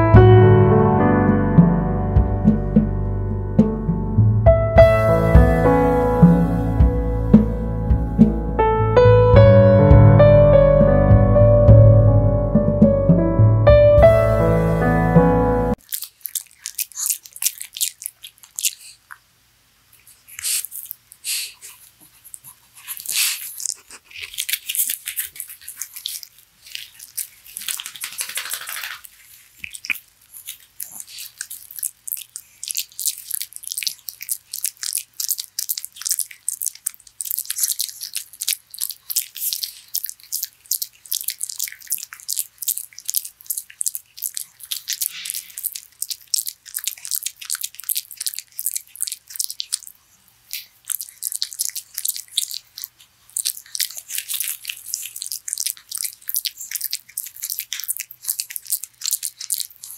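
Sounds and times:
dog chewing with crunching clicks: 15.8s - 19.3s, 20.0s - 59.9s.

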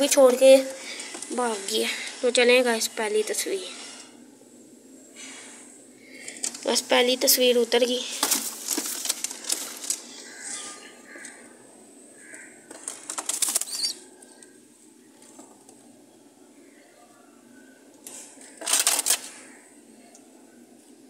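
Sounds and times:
pigeon flapping wings: 12.7s - 13.9s.

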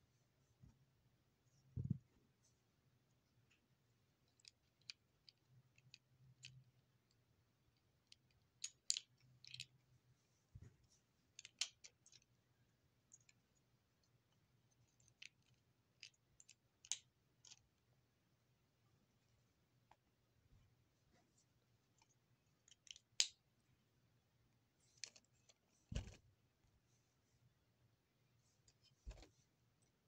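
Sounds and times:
plastic lego pieces clicking: 4.2s - 9.8s, 11.3s - 12.4s, 14.8s - 17.8s, 22.6s - 23.4s.

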